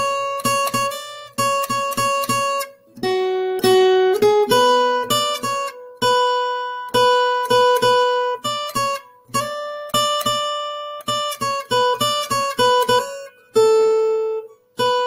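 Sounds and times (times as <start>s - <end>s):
fingerpicked acoustic guitar: 0.0s - 15.0s.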